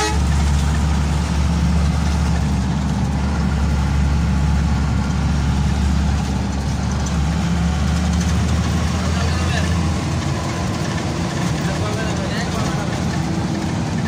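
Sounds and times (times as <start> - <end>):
bus engine droning: 0.0 - 14.0
road noise: 0.0 - 14.0.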